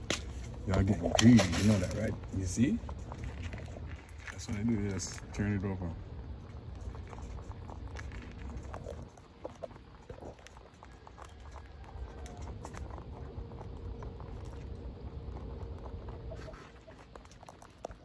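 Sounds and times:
rabbits chewing: 0:00.0 - 0:18.0
low rumble: 0:12.4 - 0:17.5.

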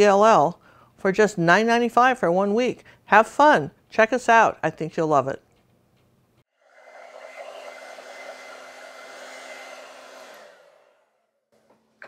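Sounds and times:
hair dryer blowing: 0:06.5 - 0:11.5.

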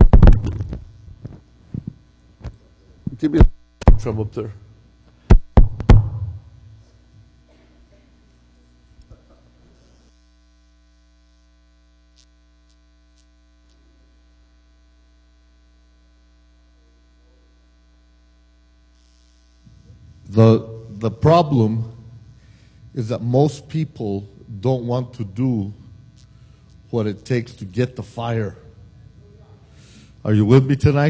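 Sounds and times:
drum strikes: 0:00.0 - 0:00.8, 0:03.4 - 0:04.4, 0:05.3 - 0:06.7
mains hum: 0:00.0 - 0:31.0.

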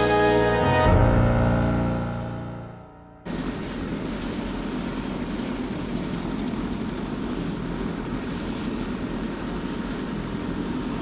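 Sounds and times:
helicopter rotor drone: 0:03.3 - 0:11.0.

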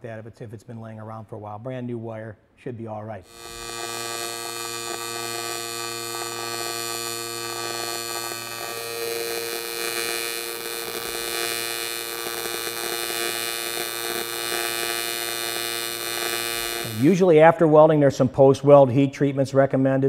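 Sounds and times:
welding arc buzzing hum: 0:03.3 - 0:17.2.

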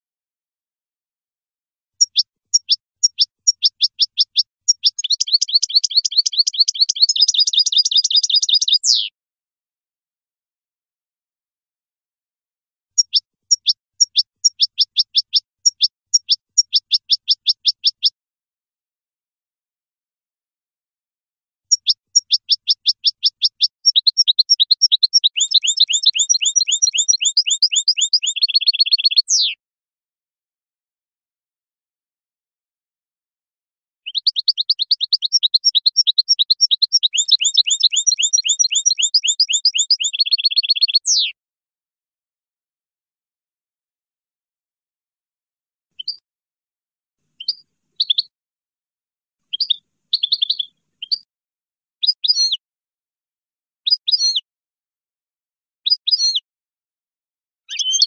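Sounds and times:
finch singing: 0:02.0 - 0:09.1, 0:13.0 - 0:18.1, 0:21.7 - 0:29.6, 0:34.0 - 0:41.4, 0:46.0 - 0:46.2, 0:47.4 - 0:48.3, 0:49.4 - 0:51.3, 0:52.0 - 0:52.6, 0:53.9 - 0:54.4, 0:55.9 - 0:56.4, 0:57.7 - 0:58.0.

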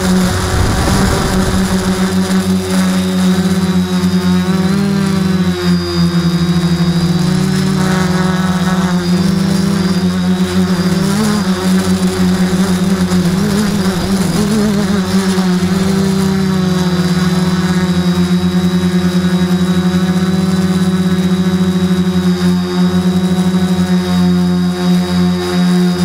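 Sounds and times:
drone motors humming: 0:00.0 - 0:26.0.

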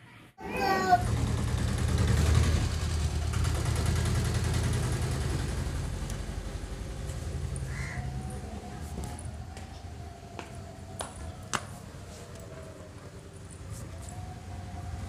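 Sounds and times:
auto-rickshaw engine idling: 0:00.8 - 0:10.1.

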